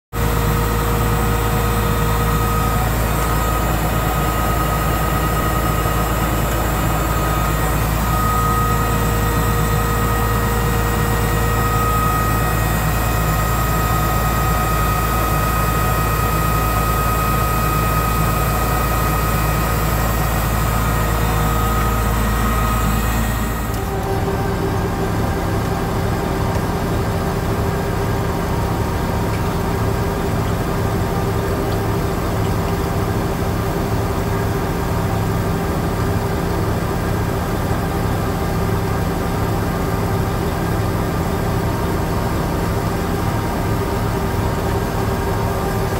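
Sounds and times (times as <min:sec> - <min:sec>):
drill rig engine running: 0:00.2 - 0:45.9.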